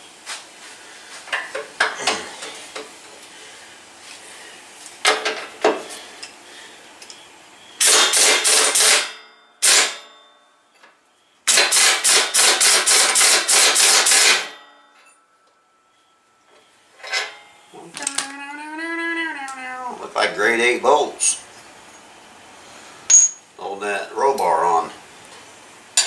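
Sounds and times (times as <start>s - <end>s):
impact wrench hammering: 7.8s - 10.0s, 11.5s - 14.7s, 23.1s - 23.4s
metal clanks: 17.0s - 17.6s.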